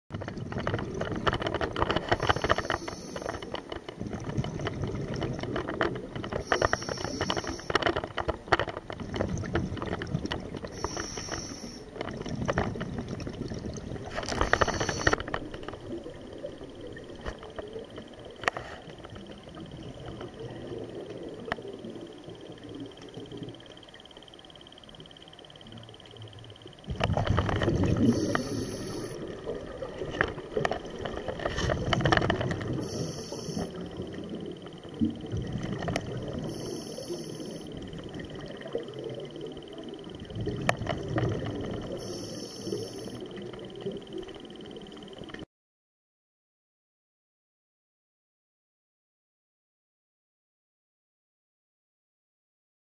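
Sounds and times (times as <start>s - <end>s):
bubbly rumble: 0.1s - 2.8s, 3.9s - 6.5s, 8.0s - 10.8s, 11.9s - 18.4s, 26.8s - 32.9s, 33.7s - 36.6s, 37.5s - 42.0s
air bubbles rushing underwater: 0.1s - 7.7s, 8.3s - 18.4s, 19.2s - 23.8s, 26.8s - 45.4s
faint high whine: 2.0s - 4.2s, 6.2s - 8.3s, 10.4s - 12.6s, 13.6s - 45.5s.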